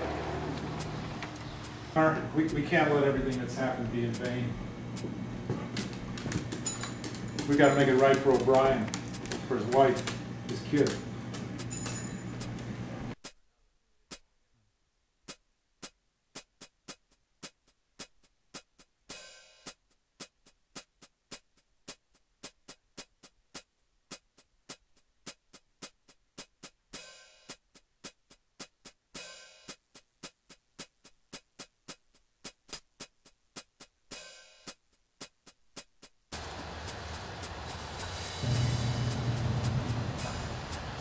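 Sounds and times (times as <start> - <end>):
drum machine ticking beat: 2.5 - 12.6, 15.3 - 41.0
electronic hissing swells: 36.4 - 41.0.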